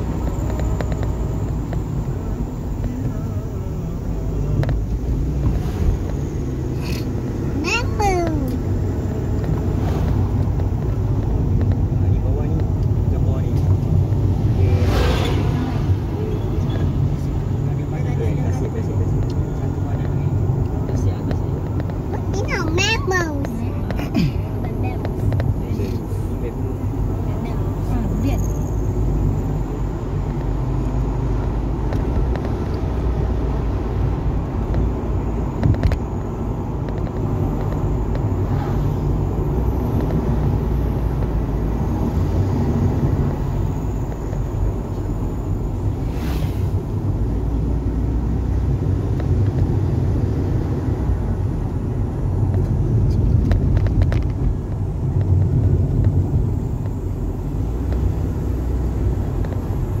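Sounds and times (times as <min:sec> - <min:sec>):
car engine and road rumble: 0:00.0 - 1:00.0.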